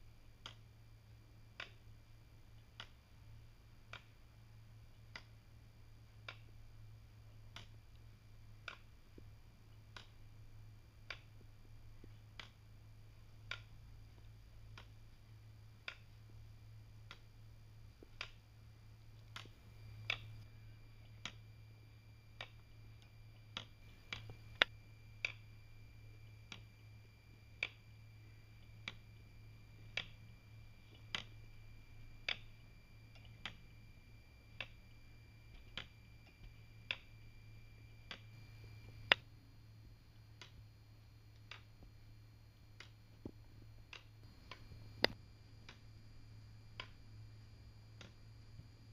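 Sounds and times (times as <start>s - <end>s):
clock escapement ticking: 0.0s - 48.9s
faint steady hum: 0.0s - 48.9s.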